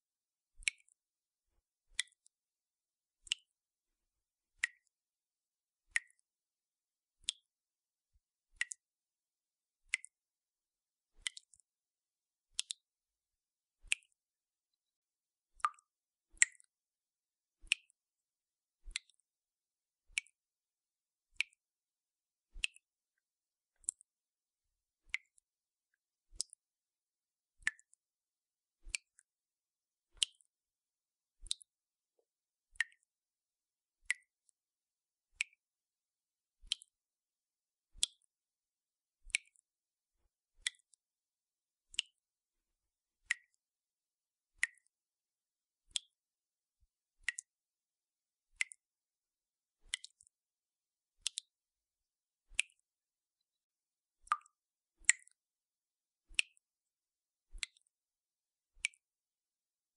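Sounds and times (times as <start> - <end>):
water dripping from tap: 5.9 - 6.2, 8.6 - 8.8, 9.9 - 10.2, 15.6 - 16.7, 23.8 - 24.1, 31.5 - 31.7, 48.6 - 48.8, 49.9 - 50.3, 51.2 - 51.6, 54.2 - 55.4.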